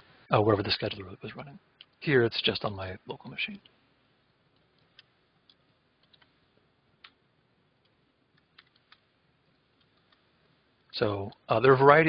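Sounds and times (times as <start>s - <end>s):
computer keyboard keystrokes: 4.8s - 6.4s, 8.4s - 9.1s.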